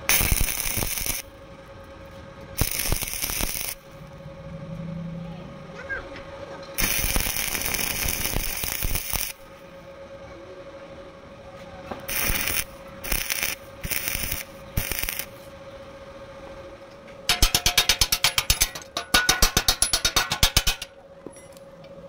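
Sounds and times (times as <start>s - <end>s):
welding arc crackle: 0.0s - 1.3s, 2.5s - 4.0s, 6.8s - 9.6s, 12.0s - 15.6s, 17.3s - 20.9s.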